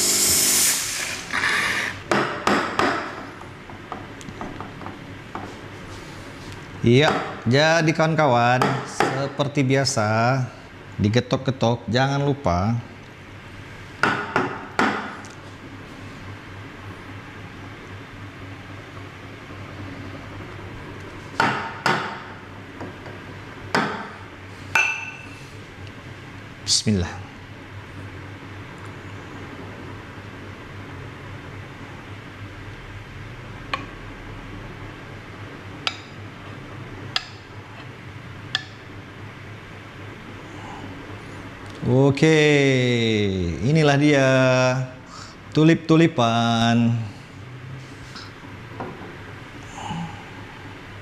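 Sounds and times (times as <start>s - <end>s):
steam wand hissing: 0.0s - 2.0s
low steady hum: 0.0s - 51.0s.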